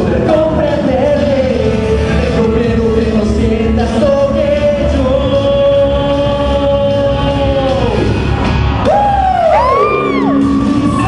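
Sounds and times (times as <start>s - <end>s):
person singing into a microphone: 0.0s - 8.1s
amplified backing music with bass: 0.0s - 11.0s.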